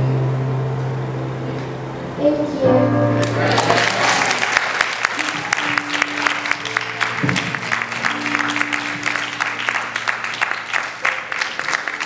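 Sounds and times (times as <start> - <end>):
congregation applauding: 3.2 - 12.0.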